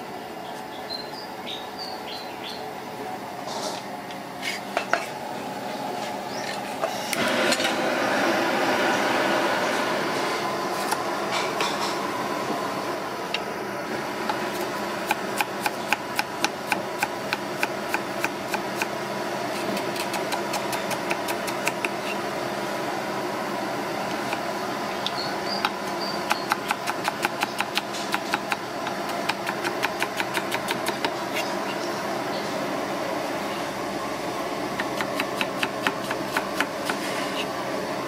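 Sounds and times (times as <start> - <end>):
knife chopping on wooden board: 25.6 - 31.5, 34.8 - 37.5.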